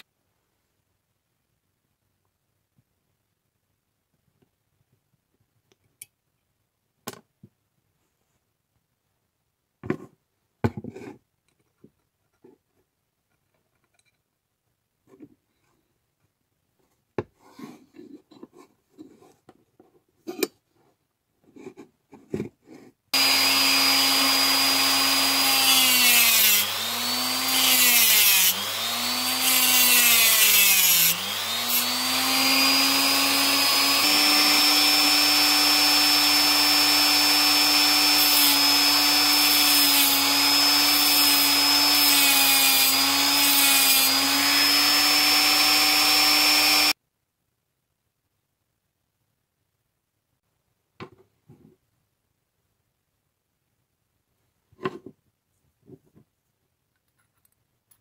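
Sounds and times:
rotary tool cutting metal: 23.2 - 47.0.

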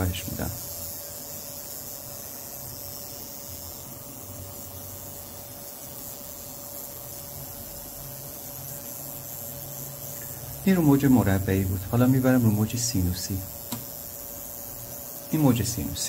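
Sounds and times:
fuel injector solenoid clicking: 13.6 - 14.0.

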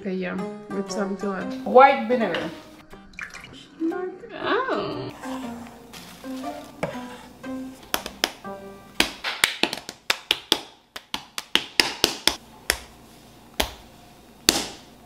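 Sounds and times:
hands slapping bread dough: 7.9 - 8.4, 9.0 - 14.9.

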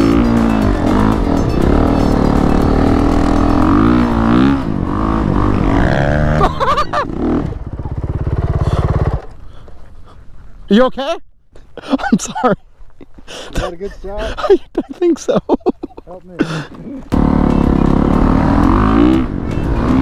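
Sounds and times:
dirt bike engine revving: 0.0 - 9.4, 17.1 - 20.0.

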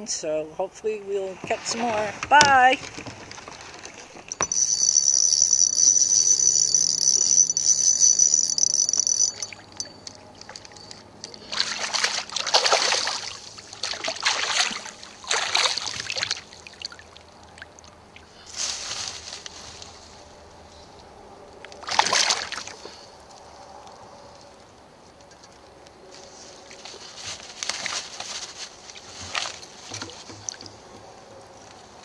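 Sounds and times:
high-pitched buzz: 4.3 - 10.0
paddle splashing through water: 11.5 - 16.4.

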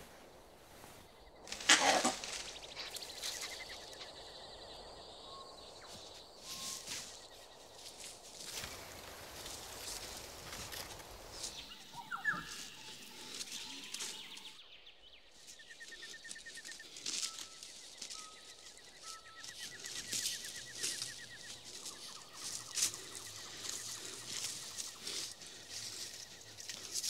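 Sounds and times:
dry leaves crunching underfoot: 1.4 - 3.7, 15.9 - 27.0.

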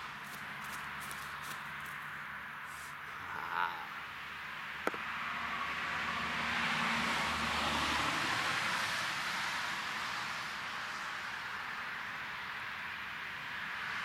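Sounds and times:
car passing by: 5.0 - 14.0.

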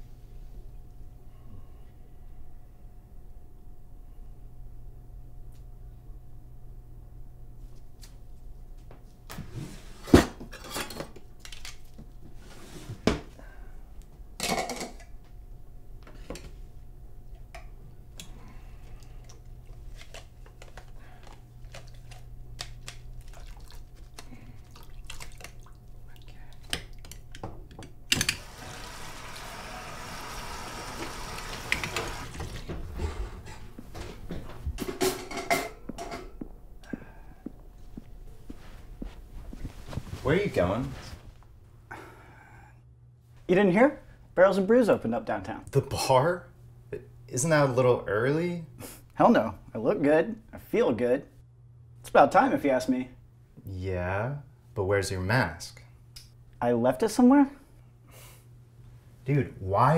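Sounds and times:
water rushing from tap: 28.4 - 32.6.

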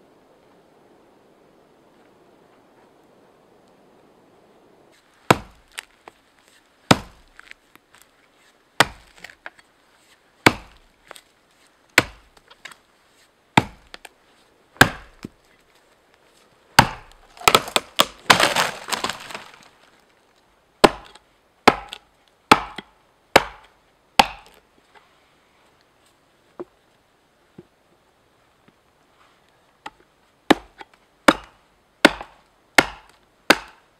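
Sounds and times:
axe chopping wood: 5.3 - 5.9, 6.9 - 7.5, 8.8 - 9.4, 10.4 - 10.9, 12.0 - 12.4, 13.6 - 14.1, 14.8 - 15.4, 16.8 - 19.6, 20.8 - 24.6, 30.5 - 33.8
wood cracking and splintering: 16.8 - 20.1.

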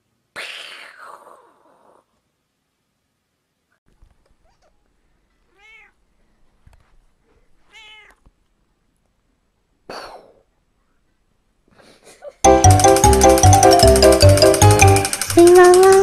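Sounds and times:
cat meowing: 4.4 - 4.8, 5.5 - 6.0, 7.6 - 8.3.

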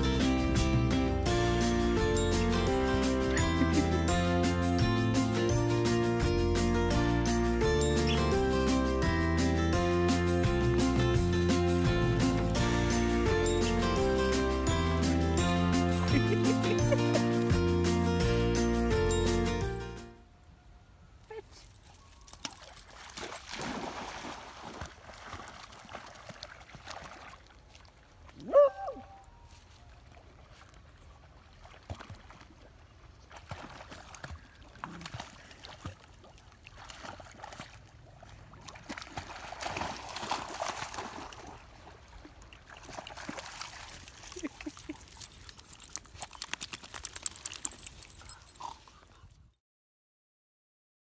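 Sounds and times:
dogs splashing in water: 22.1 - 28.8, 29.8 - 48.9
dog yelp: 28.4 - 29.2.

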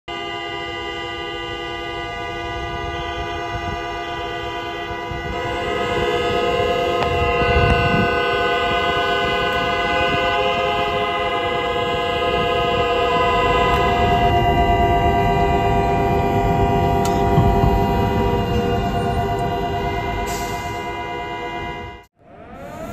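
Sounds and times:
many vehicle horns held: 0.0 - 22.1.

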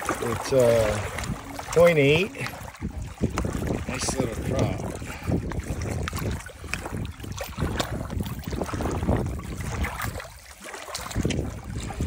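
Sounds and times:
water sloshing and splashing: 0.0 - 12.0
wind buffeting microphone: 0.0 - 12.0.

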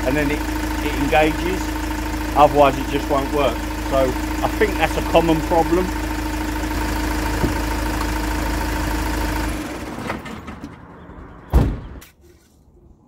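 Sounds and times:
diesel engine idling: 0.0 - 10.2
van door slamming: 7.2 - 8.0, 11.5 - 12.0.

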